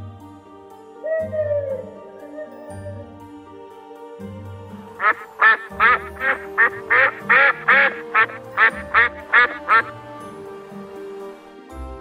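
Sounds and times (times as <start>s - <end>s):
soft background music: 0.0s - 12.0s
duck quacking: 5.0s - 10.0s.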